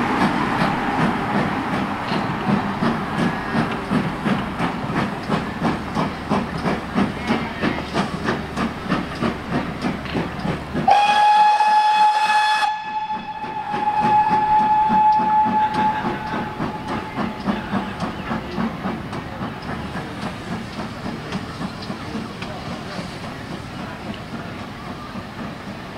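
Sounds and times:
steam locomotive exhaust beats: 0:00.0 - 0:25.9
steam locomotive whistle: 0:10.8 - 0:17.5.

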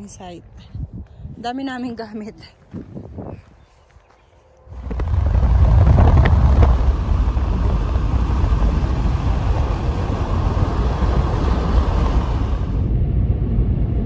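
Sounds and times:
car road and wind noise: 0:04.7 - 0:14.0.

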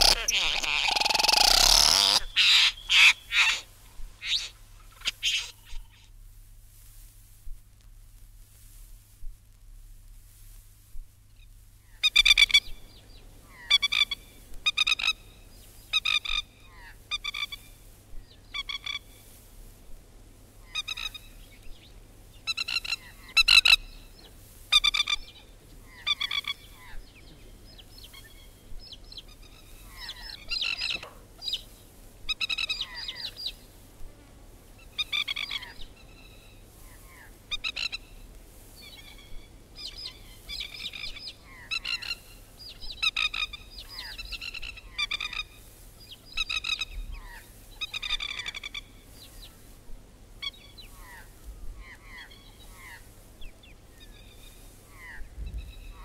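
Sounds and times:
plover calling: 0:00.0 - 0:06.1, 0:11.8 - 0:12.9, 0:13.5 - 0:17.9, 0:18.5 - 0:19.3, 0:20.6 - 0:21.4, 0:22.4 - 0:31.7, 0:32.3 - 0:33.6, 0:34.8 - 0:49.8, 0:50.4 - 0:56.0.

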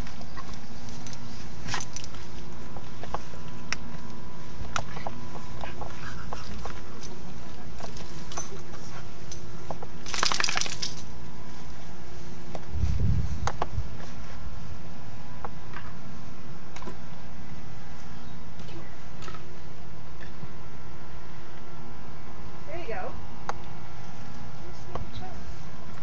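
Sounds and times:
steady low rumble: 0:00.0 - 0:26.0
dog collar tags clinking: 0:00.1 - 0:02.3, 0:06.9 - 0:11.1.

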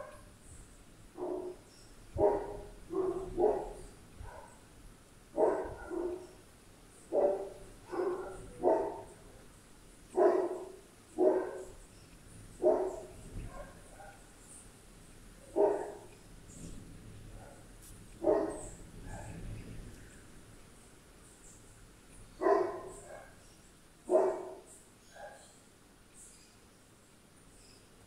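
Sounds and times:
dog barking: 0:00.0 - 0:00.3, 0:01.2 - 0:01.6, 0:02.2 - 0:04.6, 0:05.4 - 0:06.4, 0:07.1 - 0:09.3, 0:10.1 - 0:11.7, 0:12.6 - 0:14.3, 0:15.5 - 0:16.1, 0:17.3 - 0:19.4, 0:22.4 - 0:23.4, 0:24.1 - 0:25.5.

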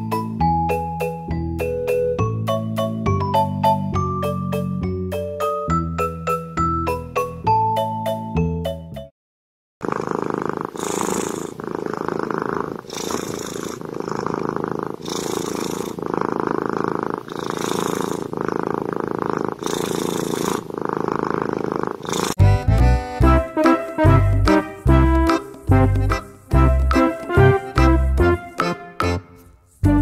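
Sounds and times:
kitten purring: 0:09.8 - 0:22.4.

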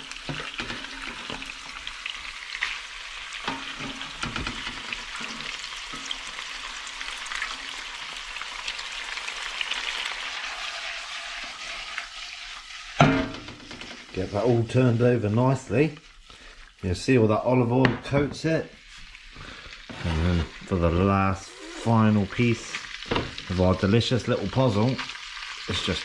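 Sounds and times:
food sizzling in a frying pan: 0:00.0 - 0:26.0.

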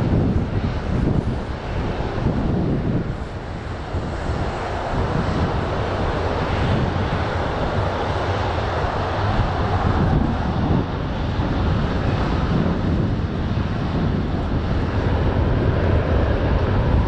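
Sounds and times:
jet engines rumbling: 0:00.0 - 0:17.0
wind buffeting microphone: 0:00.0 - 0:17.0.

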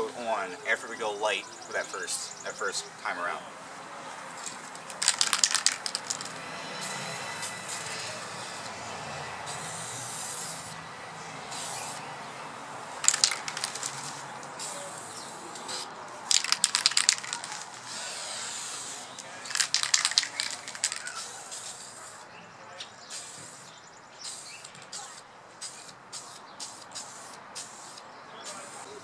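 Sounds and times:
spray can rattling clicks: 0:04.4 - 0:06.4, 0:13.0 - 0:21.9
spray can hissing: 0:04.9 - 0:08.7, 0:09.4 - 0:10.8, 0:11.5 - 0:12.0, 0:13.0 - 0:22.3, 0:23.1 - 0:28.9.

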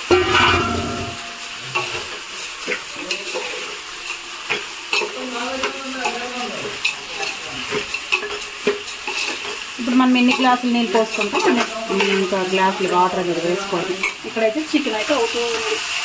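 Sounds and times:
metal spoon scraping pot: 0:00.0 - 0:02.2
oil sizzling: 0:00.0 - 0:16.0.

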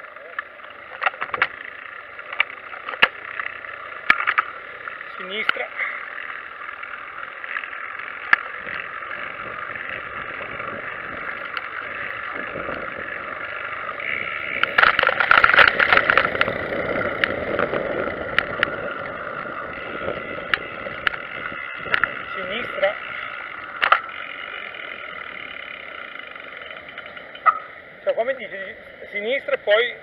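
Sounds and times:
trike rattling over tram tracks: 0:00.0 - 0:30.0
trike rolling noise: 0:00.0 - 0:30.0
wind: 0:00.0 - 0:30.0
sharp clicks: 0:23.3 - 0:24.2.

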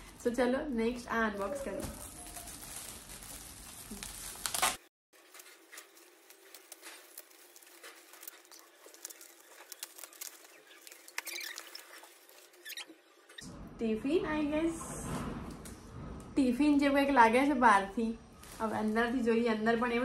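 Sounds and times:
foil gift wrap crinkling and tearing: 0:01.4 - 0:12.8.

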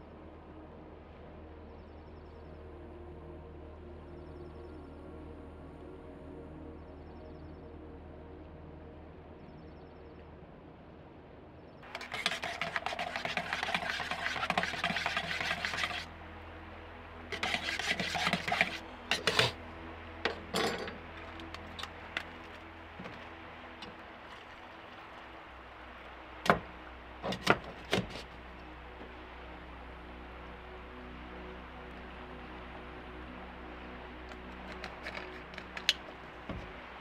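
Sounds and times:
rough scraping: 0:11.9 - 0:16.1, 0:17.3 - 0:19.6, 0:20.3 - 0:25.2, 0:26.5 - 0:28.4, 0:34.6 - 0:36.8.

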